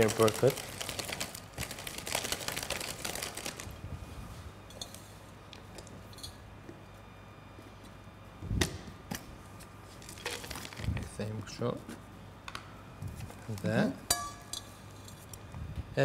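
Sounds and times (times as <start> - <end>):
crumbly topping rustling: 0.0 - 3.8.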